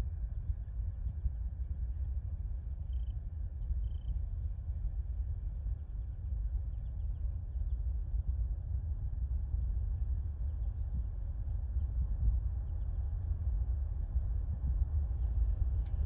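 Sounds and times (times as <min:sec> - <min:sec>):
steady low rumble: 0:00.0 - 0:16.0
insects trilling: 0:03.8 - 0:04.2.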